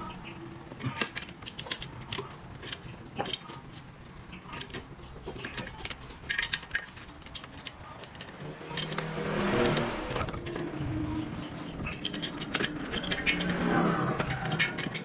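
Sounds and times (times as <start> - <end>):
socket wrench clicking: 0.9 - 3.5, 4.6 - 10.7, 11.9 - 13.6.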